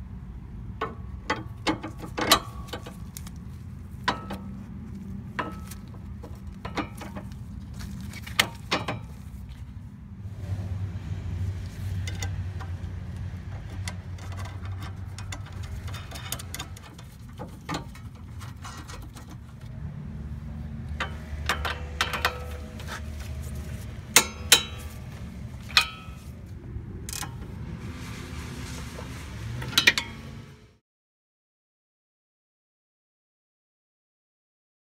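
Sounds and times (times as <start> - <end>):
metal tools clinking: 13.7 - 19.7, 20.9 - 26.4.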